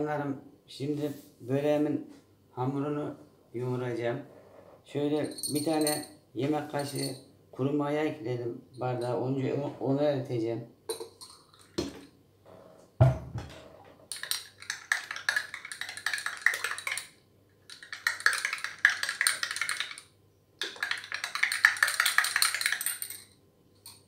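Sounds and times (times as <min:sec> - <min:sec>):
teaspoon clinking against glass: 0:05.2 - 0:07.2, 0:10.9 - 0:11.7, 0:20.6 - 0:24.0
dull knock: 0:13.0 - 0:13.5.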